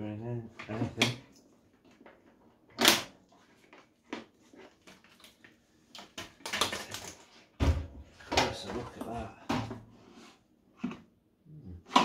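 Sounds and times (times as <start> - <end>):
plastic clattering: 1.9 - 9.8.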